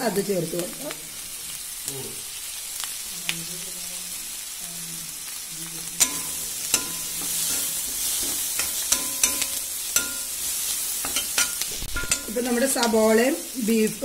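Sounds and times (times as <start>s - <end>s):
onions sizzling in oil: 0.0s - 14.0s
metal ladle scraping and knocking pan: 6.0s - 13.0s.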